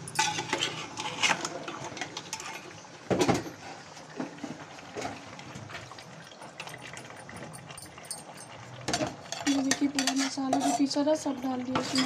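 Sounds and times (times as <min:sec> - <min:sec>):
metal utensils clanking on pot: 0:00.0 - 0:03.6, 0:06.6 - 0:12.0.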